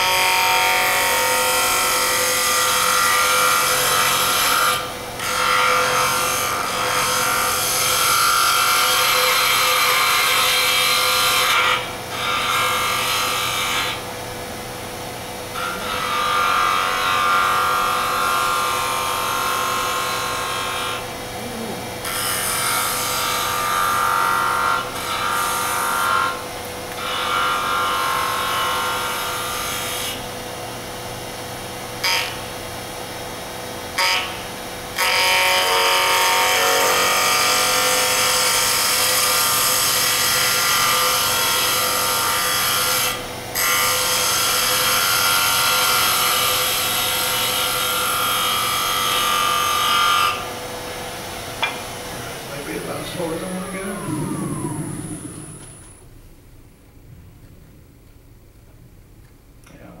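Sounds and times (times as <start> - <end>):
steady hum: 50.5 - 60.0.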